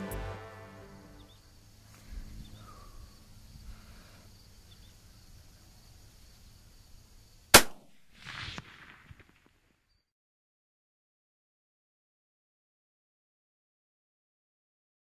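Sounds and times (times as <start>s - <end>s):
rifle shot: 7.5s - 9.5s.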